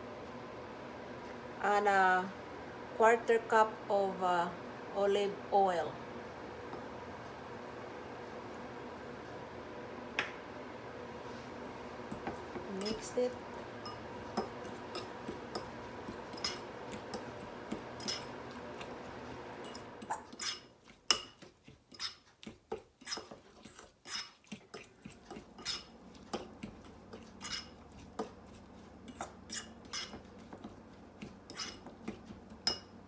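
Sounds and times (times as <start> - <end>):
spoon clinking on ceramic bowl: 13.8 - 17.4, 19.6 - 22.2, 32.6 - 32.9.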